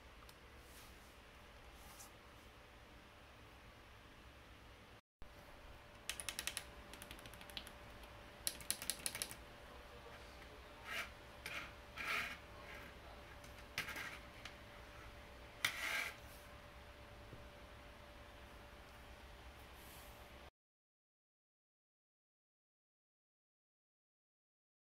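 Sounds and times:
keypad keys clicking: 6.1s - 9.4s.

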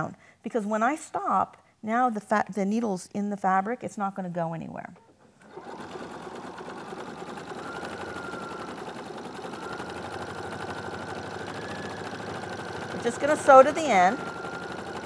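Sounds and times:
sewing machine stitching: 5.4s - 15.0s.

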